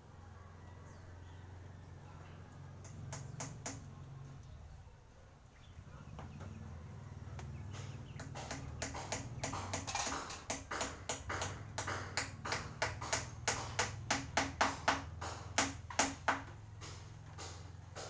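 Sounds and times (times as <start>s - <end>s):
sharp tapping strokes: 2.8s - 4.0s, 7.4s - 18.0s.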